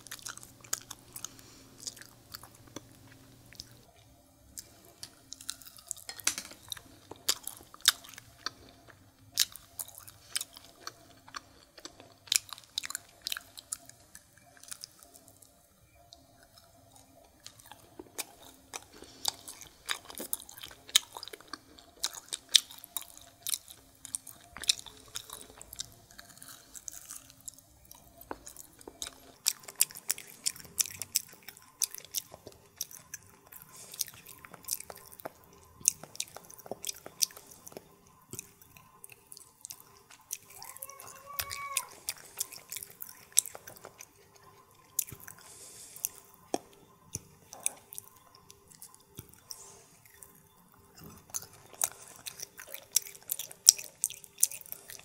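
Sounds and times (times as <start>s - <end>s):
wet chewing mouth clicks: 16.2s - 40.8s, 41.4s - 55.0s.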